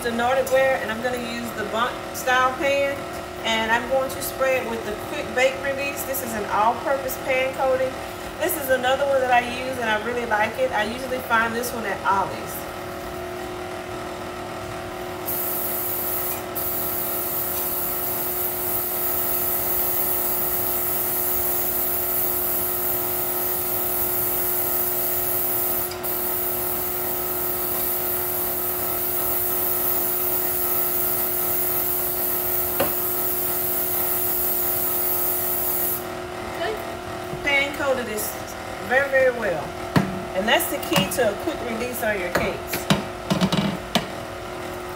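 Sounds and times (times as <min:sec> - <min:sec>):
aerosol spray hissing: 0:15.3 - 0:26.8, 0:27.4 - 0:36.0.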